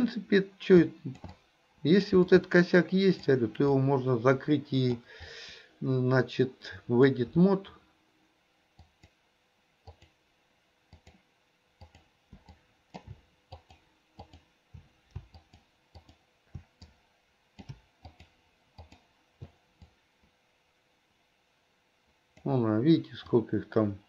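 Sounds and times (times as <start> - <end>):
mouse and keyboard clicking: 1.1 - 1.4, 9.8 - 10.2, 10.9 - 11.2, 11.8 - 17.0, 17.6 - 20.0.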